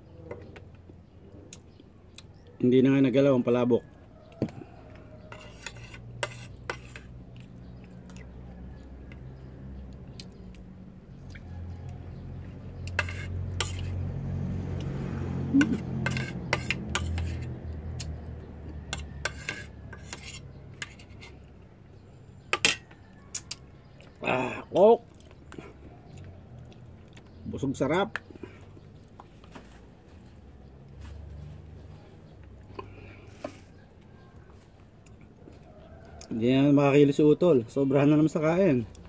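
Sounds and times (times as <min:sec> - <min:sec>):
spoon scraping metal plate: 0:05.2 - 0:07.2, 0:12.8 - 0:14.0, 0:15.6 - 0:17.6, 0:18.9 - 0:21.4, 0:22.5 - 0:22.9.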